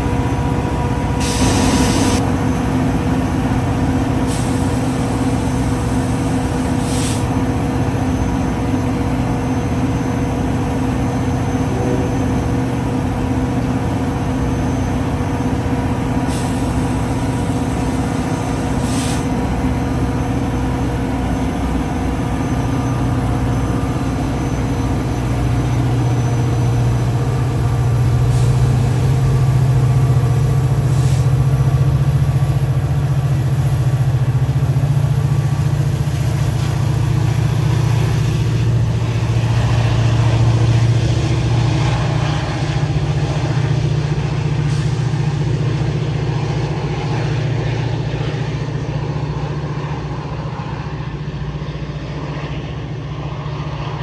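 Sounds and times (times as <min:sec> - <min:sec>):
diesel locomotive engine running: 0:00.0 - 0:54.0.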